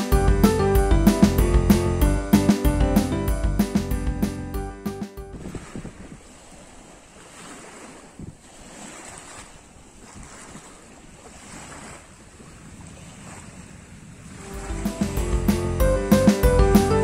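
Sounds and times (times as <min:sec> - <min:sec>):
wind buffeting microphone: 0:05.3 - 0:16.1
small waves lapping: 0:05.3 - 0:17.0.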